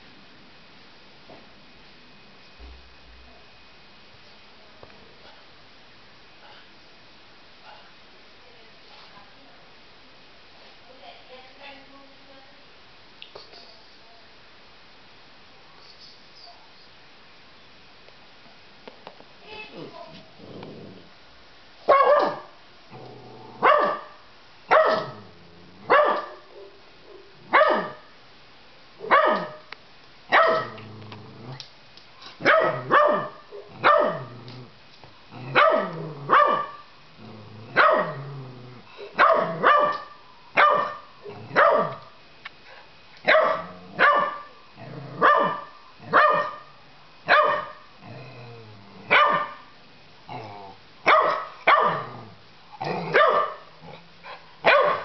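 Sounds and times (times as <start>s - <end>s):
puppy barking: 21.9s - 22.6s, 23.6s - 25.2s, 25.9s - 28.1s, 29.0s - 29.7s, 30.3s - 30.8s, 32.4s - 34.3s, 35.5s - 36.9s, 37.8s - 38.2s, 39.2s - 42.0s, 43.3s - 44.5s, 45.2s - 46.7s, 47.3s - 47.9s, 49.1s - 49.6s, 51.0s - 52.1s, 53.1s - 53.7s, 54.6s - 55.0s.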